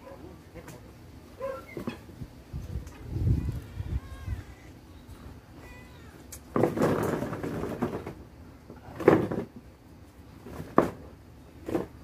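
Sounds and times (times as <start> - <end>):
plastic chair scraping on concrete: 6.3 - 9.7, 10.3 - 12.0.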